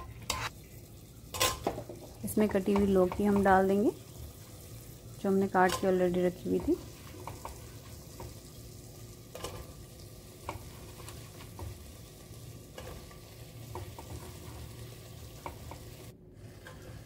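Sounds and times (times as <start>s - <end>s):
low steady sizzle: 0.0s - 17.0s
vegetable pieces knocking pot: 1.4s - 3.7s.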